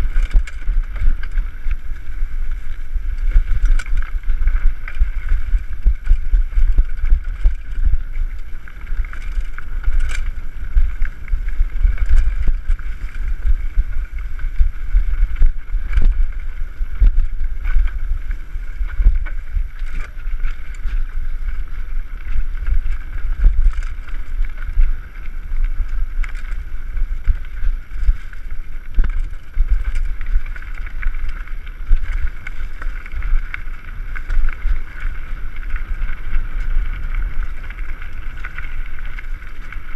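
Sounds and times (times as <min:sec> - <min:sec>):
bike knocks and rattles: 0:00.0 - 0:25.4
wind buffeting microphone: 0:00.0 - 0:39.9.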